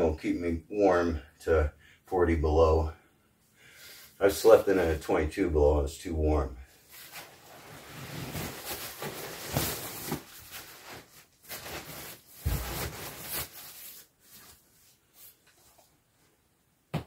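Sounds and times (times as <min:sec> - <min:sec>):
fabric rustling and swishing: 0:06.8 - 0:15.4.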